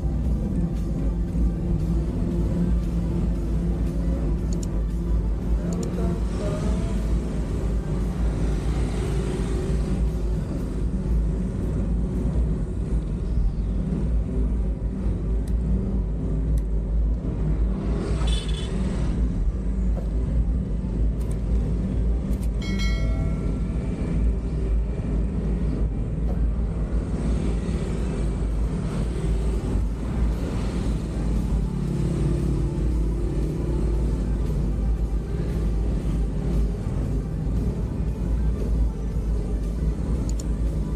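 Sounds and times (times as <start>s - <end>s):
passing traffic: 0.0s - 40.9s
vehicle hum: 0.0s - 40.9s.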